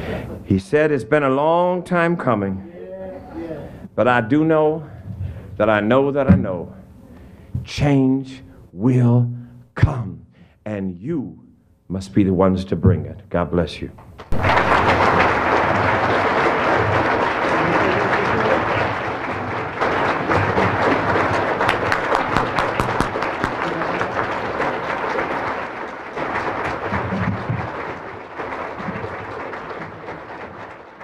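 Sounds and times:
audience applauding: 0:14.2 - 0:31.0.

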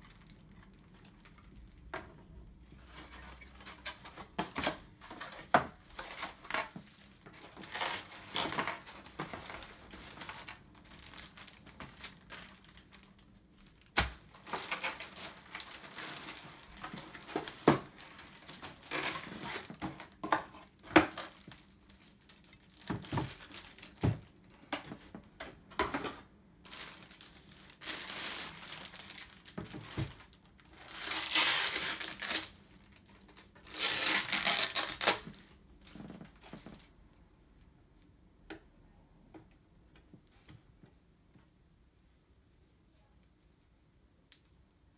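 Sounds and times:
plastic wrapping crinkling: 0:00.0 - 0:25.1, 0:26.0 - 0:36.9
cardboard packaging rustling: 0:02.6 - 0:25.2, 0:25.8 - 0:36.9.

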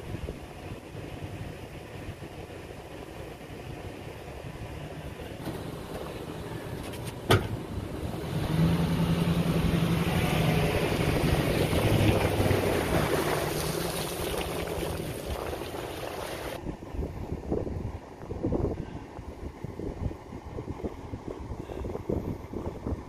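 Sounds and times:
boat engine running: 0:00.0 - 0:16.6
propeller wash churning water: 0:05.1 - 0:16.6.

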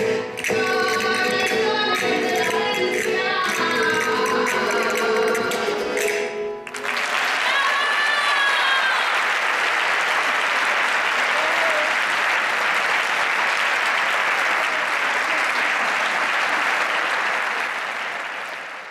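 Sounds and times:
audience applauding: 0:04.5 - 0:18.9.

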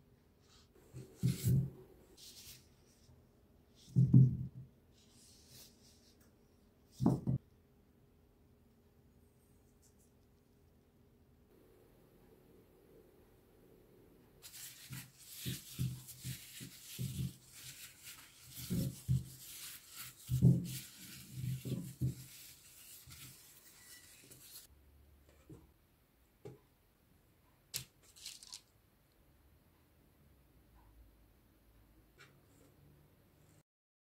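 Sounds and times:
plastic gloves crinkling: 0:14.4 - 0:24.7, 0:28.1 - 0:28.6.

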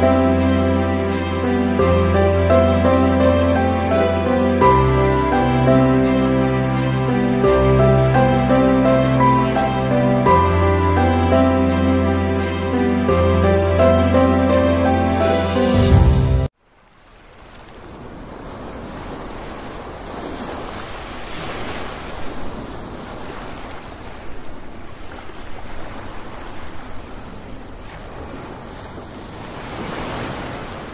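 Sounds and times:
surf washing onto beach: 0:16.8 - 0:30.9.

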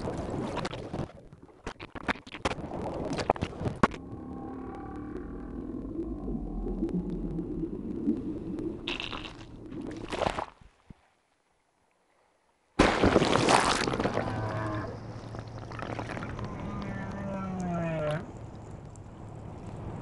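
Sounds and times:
underwater rushing noise: 0:02.6 - 0:10.3, 0:12.8 - 0:20.0
whale calls: 0:04.0 - 0:07.5, 0:14.0 - 0:18.4.

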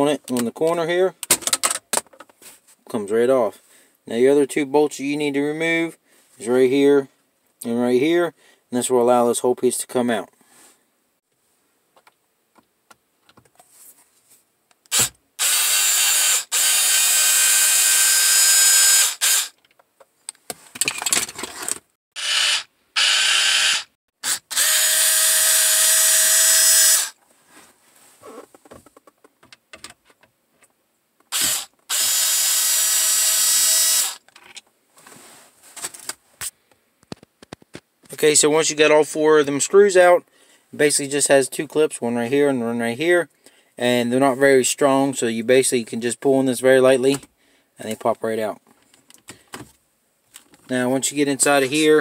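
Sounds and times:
cordless power screwdriver running: 0:14.9 - 0:19.5, 0:22.2 - 0:27.2, 0:31.3 - 0:34.2.

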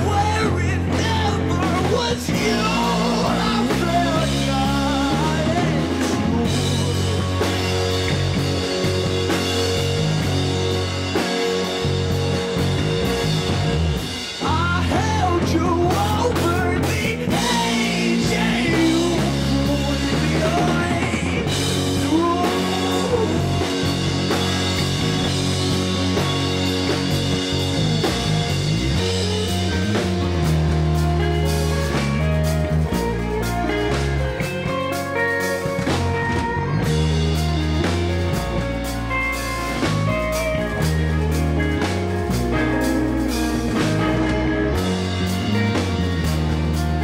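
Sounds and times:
wordless singing: 0:00.0 - 0:08.1, 0:14.4 - 0:24.9
drum kit: 0:00.0 - 0:47.0
electric guitars: 0:00.0 - 0:47.0.

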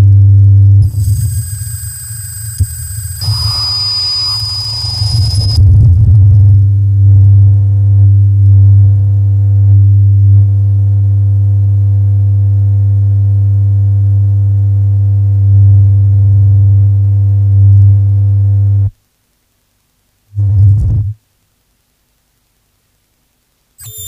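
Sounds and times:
low buzzy feedback drone: 0:00.1 - 0:13.7.

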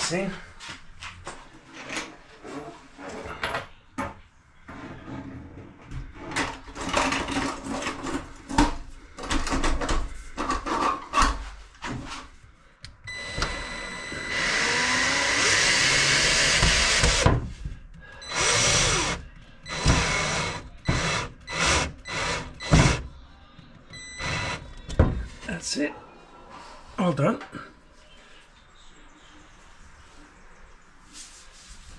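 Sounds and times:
cordless drill running: 0:13.2 - 0:17.2, 0:18.3 - 0:23.0.

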